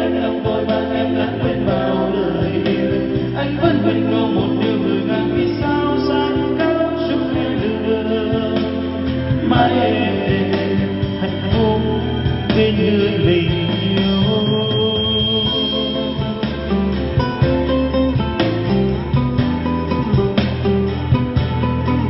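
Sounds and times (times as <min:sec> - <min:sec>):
song with singing over a speaker: 0:00.0 - 0:22.0.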